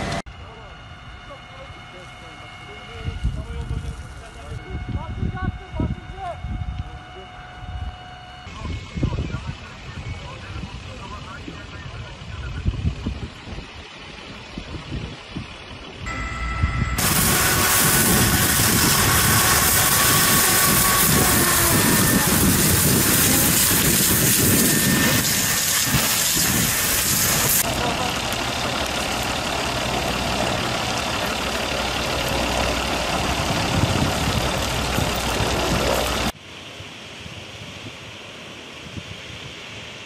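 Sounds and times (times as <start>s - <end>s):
fire truck engine running: 0.0s - 40.0s
voices: 0.4s - 7.7s, 8.5s - 13.4s, 27.6s - 32.7s
fire hose spraying water: 17.0s - 40.0s
fire roaring: 17.0s - 40.0s.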